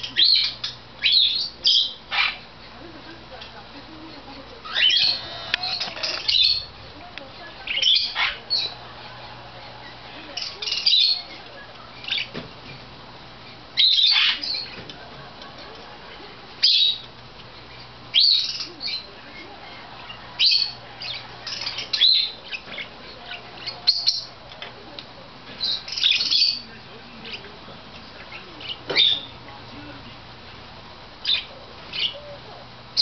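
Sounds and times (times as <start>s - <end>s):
parakeets chirping and squawking: 0.0s - 2.6s, 4.5s - 14.9s, 15.8s - 24.4s, 25.6s - 27.5s, 28.1s - 29.4s, 31.2s - 32.4s.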